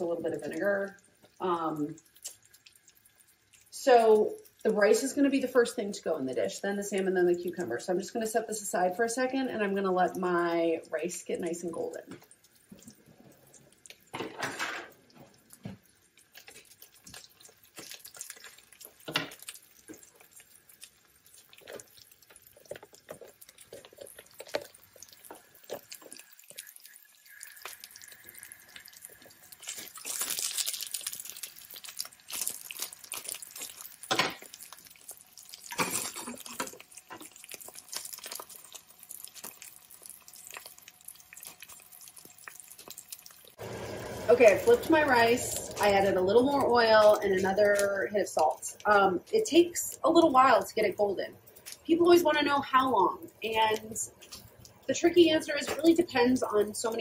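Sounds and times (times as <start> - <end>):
rice sizzling and popping in oil: 0.0 - 8.2, 9.7 - 52.0, 53.1 - 57.0.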